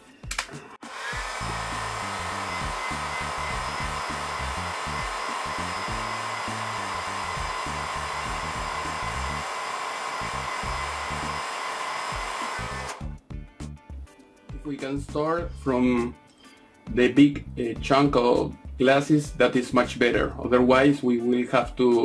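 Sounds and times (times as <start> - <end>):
heat gun hissing and whining: 0.8 - 13.0.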